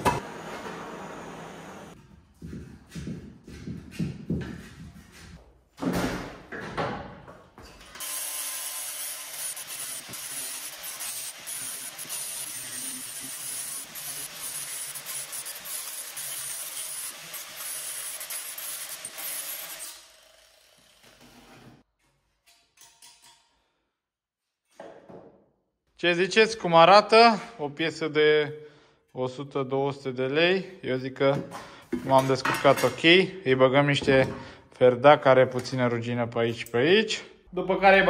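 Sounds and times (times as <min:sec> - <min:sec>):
angle grinder on sheet metal: 0:08.0 - 0:21.8.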